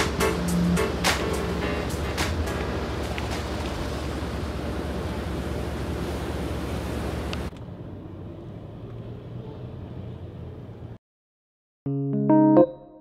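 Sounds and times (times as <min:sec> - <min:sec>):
water washing past ferry: 0:00.0 - 0:07.5.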